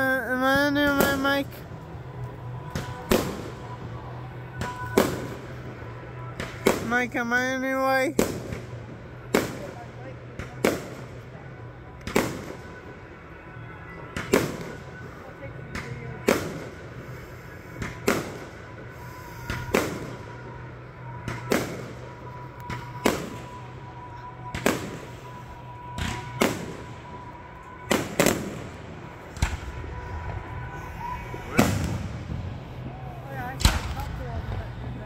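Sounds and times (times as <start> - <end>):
aerial fireworks bangs: 2.6 - 3.8, 4.5 - 5.6, 8.2 - 9.8, 12.0 - 12.7, 17.8 - 18.6, 19.3 - 20.4, 21.2 - 23.6, 24.5 - 25.1, 25.9 - 27.2, 27.8 - 32.7, 33.5 - 34.6.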